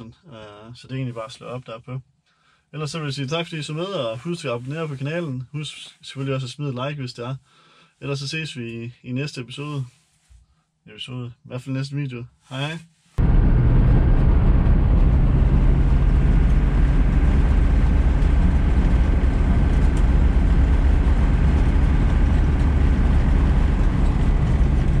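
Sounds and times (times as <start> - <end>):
engine drone: 13.2 - 25.0.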